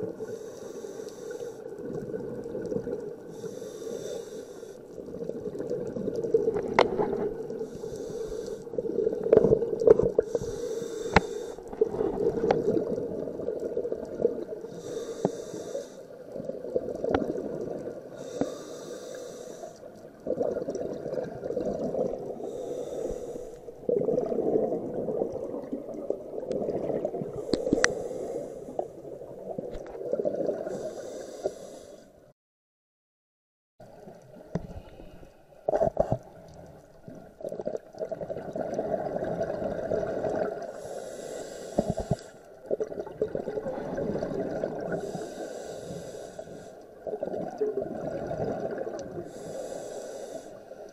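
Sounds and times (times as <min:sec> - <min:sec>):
diver breathing through regulator: 0:00.2 - 0:01.7, 0:03.3 - 0:04.9, 0:07.6 - 0:08.9, 0:10.2 - 0:12.6, 0:14.7 - 0:16.2, 0:18.1 - 0:19.9, 0:22.0 - 0:23.9, 0:27.3 - 0:29.1, 0:30.6 - 0:32.2, 0:40.7 - 0:42.5, 0:44.9 - 0:46.9, 0:49.2 - 0:50.9
bubbling rumble: 0:11.7 - 0:14.7, 0:20.1 - 0:27.8, 0:36.9 - 0:40.6, 0:42.7 - 0:45.1, 0:47.1 - 0:49.3.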